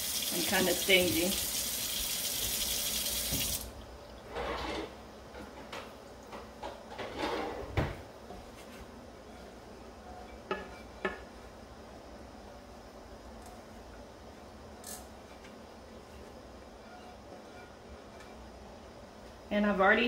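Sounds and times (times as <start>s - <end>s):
spatula scraping a pot: 16.8s - 18.5s.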